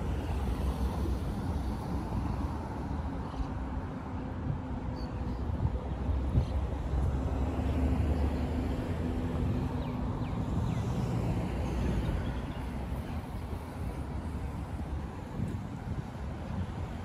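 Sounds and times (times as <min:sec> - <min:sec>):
cars driving past: 0:05.9 - 0:17.0.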